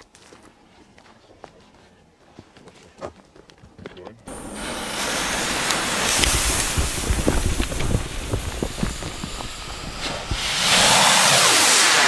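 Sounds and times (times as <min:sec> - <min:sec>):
fuse hissing and crackling: 0:04.3 - 0:12.0
rocket motor rushing: 0:04.3 - 0:12.0.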